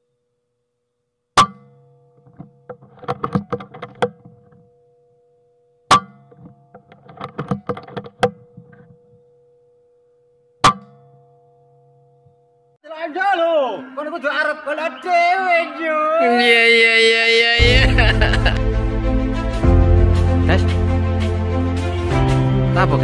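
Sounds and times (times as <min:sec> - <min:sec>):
clicks and rattles: 0:02.2 - 0:04.7, 0:06.3 - 0:09.2.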